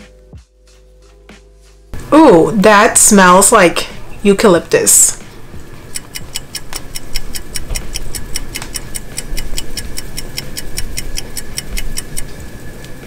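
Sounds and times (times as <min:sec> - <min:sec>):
clock ticking rapidly: 0:05.9 - 0:12.5.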